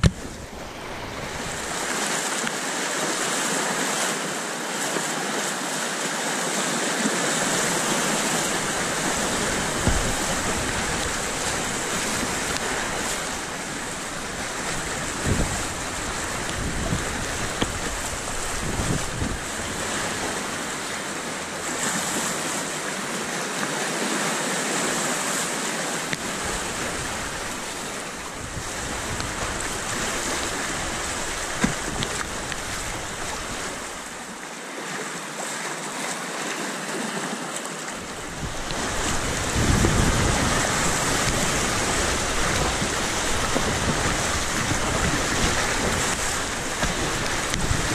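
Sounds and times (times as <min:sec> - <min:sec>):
dull thumps: 0:00.0 - 0:00.6, 0:09.3 - 0:11.1
whitewater rushing: 0:00.0 - 0:47.9.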